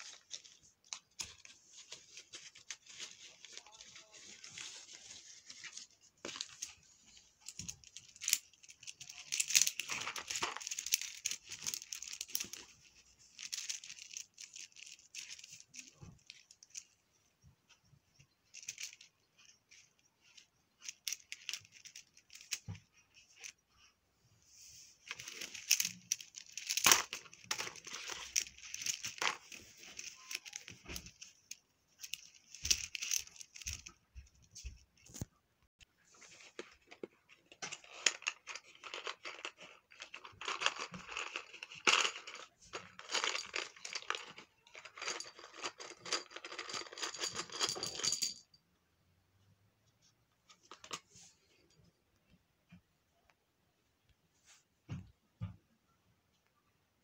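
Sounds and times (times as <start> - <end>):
plastic toy pieces clicking: 7.5 - 12.7.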